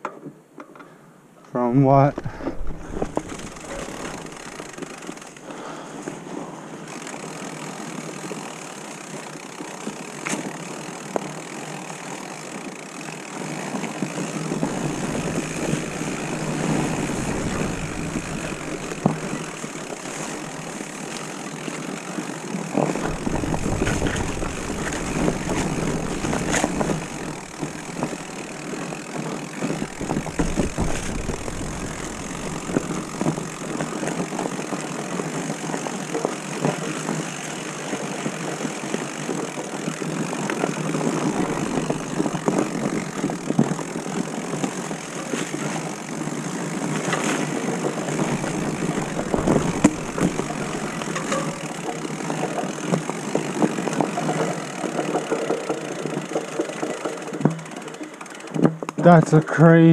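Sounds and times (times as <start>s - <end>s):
bike rattles and knocks: 1.8s - 59.9s
bike tyres rolling: 1.8s - 59.9s.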